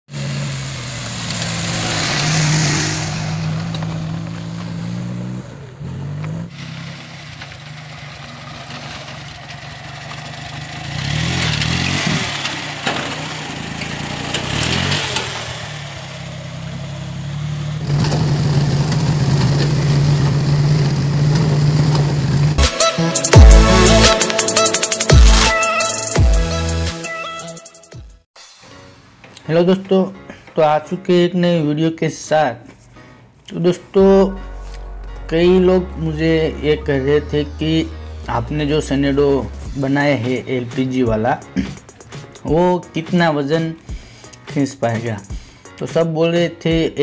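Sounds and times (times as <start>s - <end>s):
small tractor engine running: 3.1s - 22.6s.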